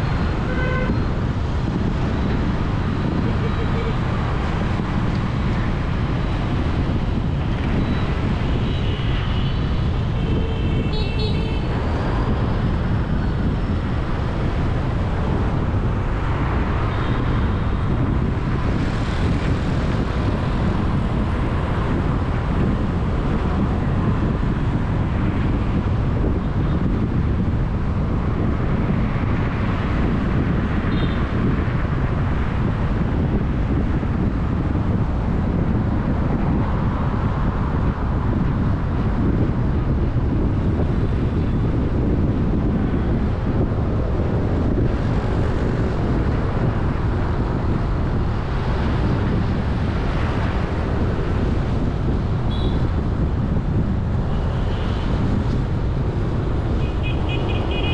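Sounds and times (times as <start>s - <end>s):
road traffic rumble: 0.0s - 57.9s
vehicle horns beeping: 0.4s - 1.1s, 10.2s - 11.7s, 52.5s - 52.8s, 56.8s - 57.9s.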